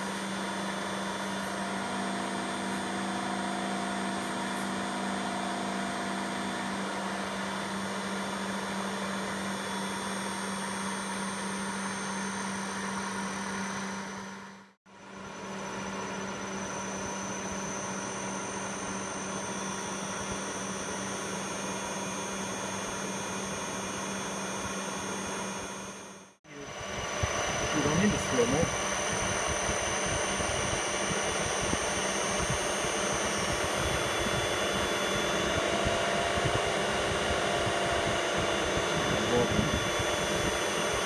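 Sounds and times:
electric motor humming: 16.4s - 41.0s.

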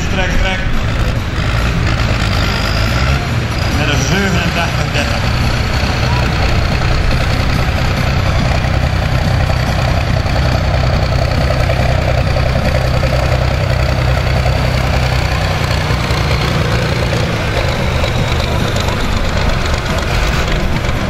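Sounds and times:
diesel tractor engines droning: 0.0s - 21.0s.

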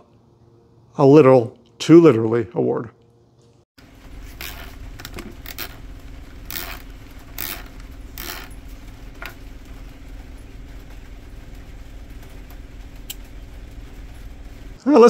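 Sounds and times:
small metal tools clinking: 6.5s - 8.6s.

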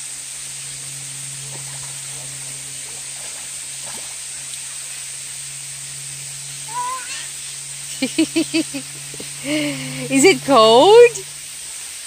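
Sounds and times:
creek running over rock: 0.4s - 12.0s
toddler crying out: 6.7s - 7.3s.

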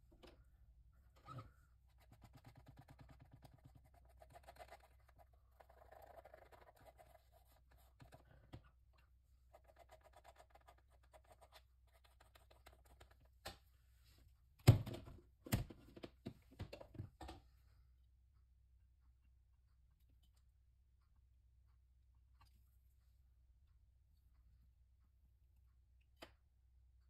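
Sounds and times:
scratching on painting: 1.2s - 13.4s.

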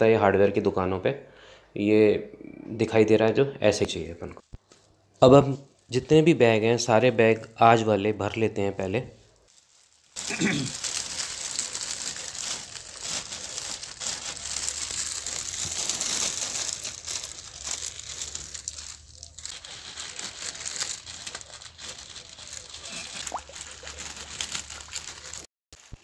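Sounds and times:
plastic bag crinkling: 4.7s - 7.3s, 9.2s - 26.0s.

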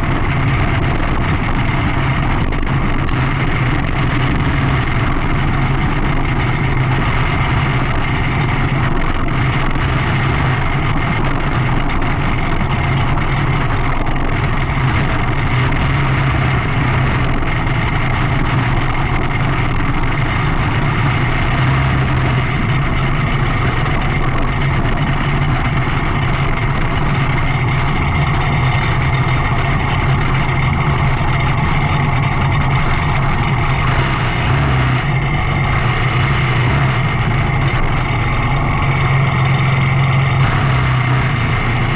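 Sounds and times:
race car engine drone: 0.0s - 41.9s.

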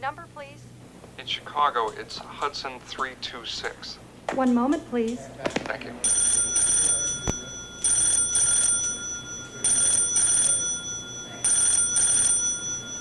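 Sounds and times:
telephone ringing: 6.0s - 13.0s.

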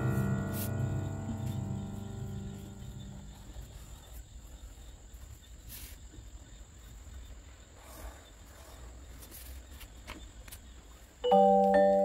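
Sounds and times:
low hum: 0.0s - 4.2s
soft rustles: 0.0s - 11.1s
faint high-pitched whine: 0.0s - 12.0s.

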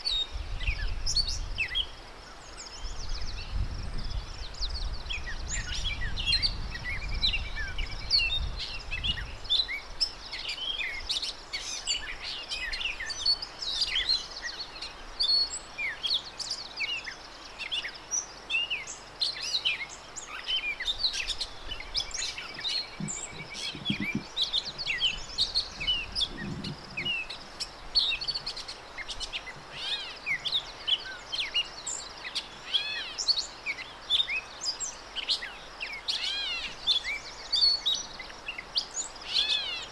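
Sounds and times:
catbird singing: 20.4s - 39.9s.

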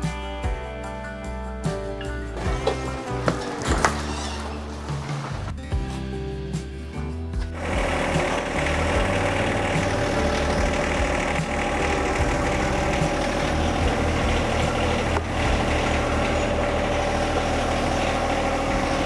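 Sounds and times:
tractor diesel engine running: 2.4s - 5.5s, 7.4s - 19.0s.

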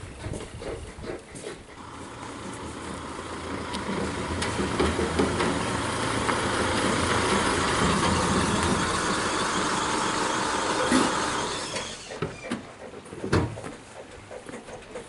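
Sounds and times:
pickup truck engine driving: 1.8s - 12.0s.

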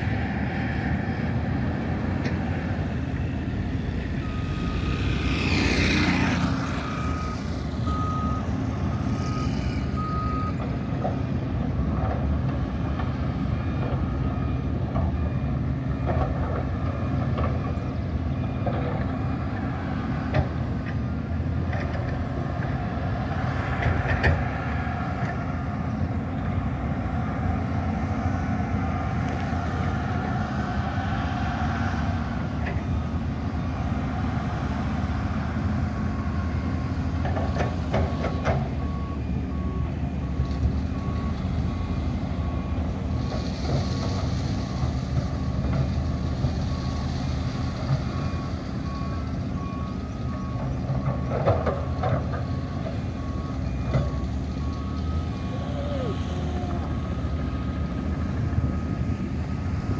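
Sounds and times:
heavy machinery diesel rumble: 0.0s - 59.9s
reversing alarm beeping: 3.1s - 10.6s, 37.7s - 43.0s, 47.8s - 59.3s.

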